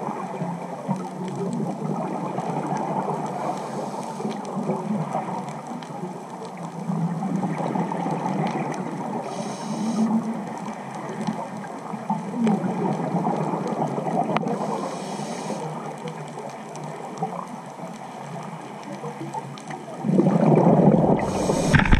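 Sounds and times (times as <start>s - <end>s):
regulator inhalation hiss: 3.4s - 4.3s, 9.2s - 10.2s, 14.6s - 15.7s, 21.2s - 21.9s
underwater regulator bubbling: 20.0s - 21.9s.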